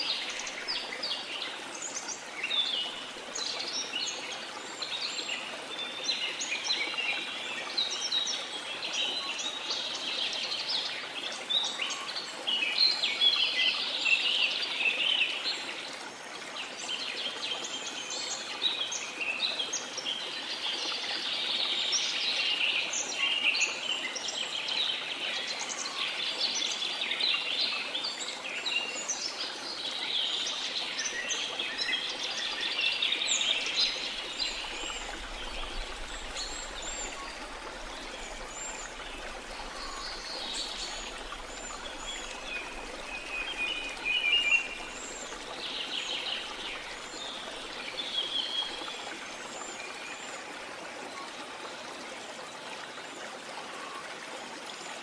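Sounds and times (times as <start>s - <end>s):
waterfall rushing: 32.9s - 49.0s.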